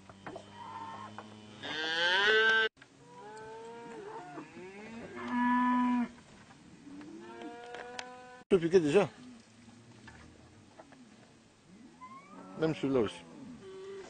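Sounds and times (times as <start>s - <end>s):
cattle mooing: 0.4s - 6.1s, 6.9s - 8.4s.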